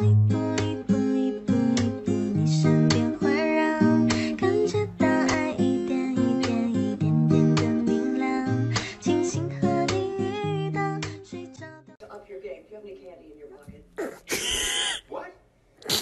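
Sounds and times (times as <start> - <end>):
strummed acoustic guitar music: 0.0 - 11.9.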